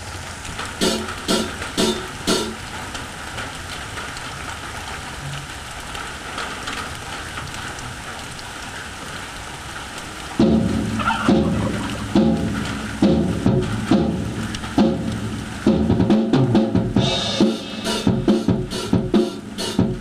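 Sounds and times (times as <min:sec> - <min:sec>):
guitar amplifier hiss and hum: 0:00.0 - 0:03.7, 0:10.2 - 0:20.0.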